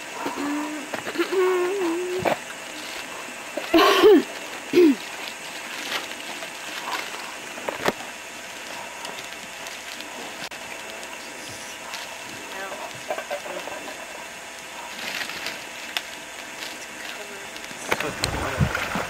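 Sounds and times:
person calling: 0.3 - 2.3, 3.7 - 5.1.

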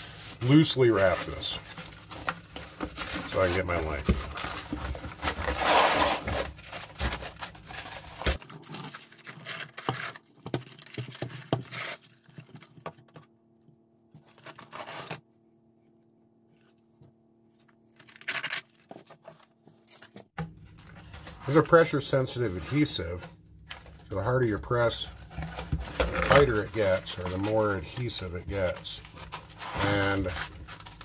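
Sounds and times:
sandpaper rustling and scraping: 0.0 - 2.2, 5.2 - 10.2, 26.4 - 31.0
paper ripping: 2.9 - 10.2, 14.3 - 15.2, 18.0 - 20.0, 25.9 - 31.0.

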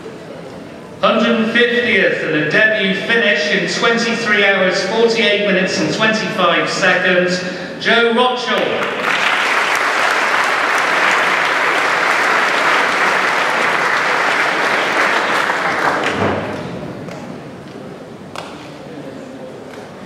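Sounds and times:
audience applauding: 8.6 - 16.7.

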